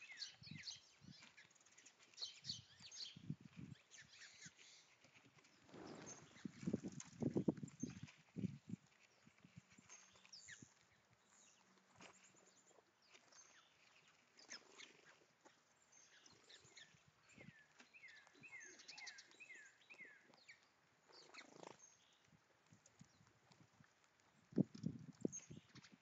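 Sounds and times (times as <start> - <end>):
squirrel feeding clicks and rustles: 0.0 - 26.0
distant songbird whistling: 5.7 - 6.7.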